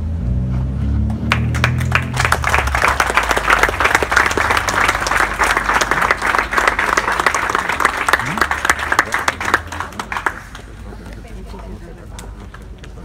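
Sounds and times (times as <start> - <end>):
crowd applauding: 1.2 - 11.2.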